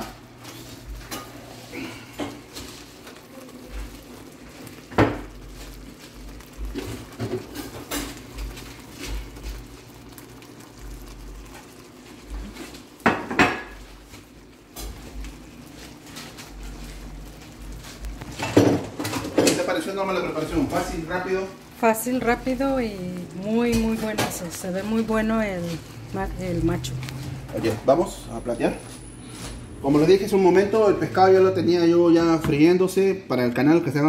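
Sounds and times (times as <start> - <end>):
pots and pans clattering: 0.0 - 10.5, 11.4 - 17.0, 17.8 - 21.3.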